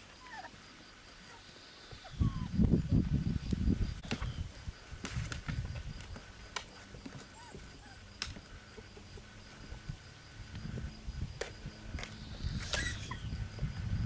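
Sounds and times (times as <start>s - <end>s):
faint short squeak: 12.4s - 13.3s.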